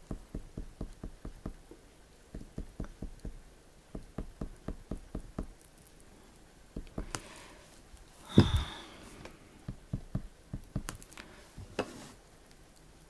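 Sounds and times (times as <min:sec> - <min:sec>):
crayon tapping on paper: 0:00.0 - 0:01.6, 0:02.3 - 0:05.6, 0:06.7 - 0:07.2, 0:09.6 - 0:11.1.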